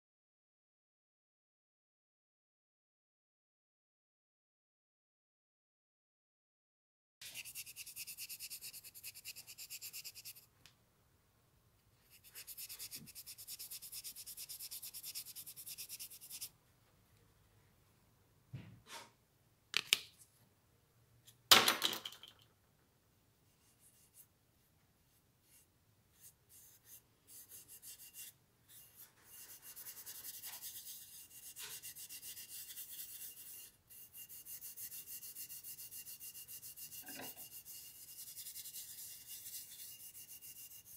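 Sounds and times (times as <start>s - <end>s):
steel wool scrubbing metal: 26.5s - 40.9s.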